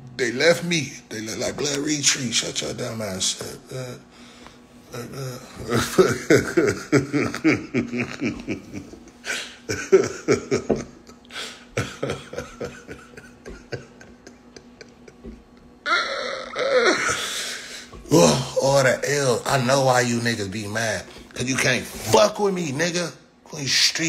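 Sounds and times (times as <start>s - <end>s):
man laughing hard: 5.0s - 18.6s
gasping breaths: 11.3s - 11.7s.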